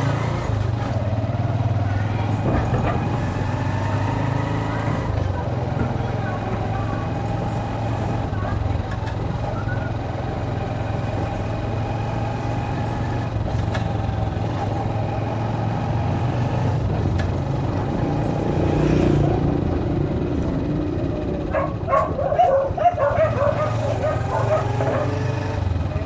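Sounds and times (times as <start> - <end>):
motorcycle engine running: 0.0 - 26.0
dog barking: 21.5 - 25.4.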